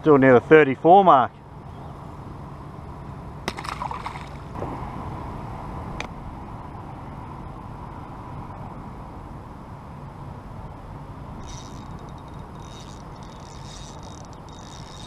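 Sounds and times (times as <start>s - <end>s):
water and wind background: 0.0s - 15.0s
fish splashing into river: 3.5s - 4.5s.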